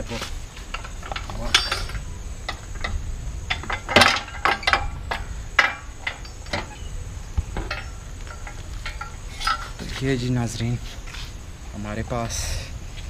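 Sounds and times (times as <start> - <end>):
spanner clinking on metal: 0.7 - 10.0.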